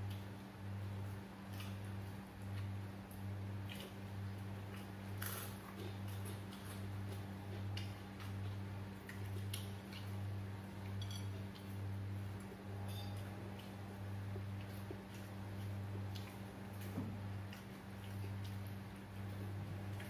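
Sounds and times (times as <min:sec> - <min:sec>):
cutlery and plates clinking: 0:11.0 - 0:11.4.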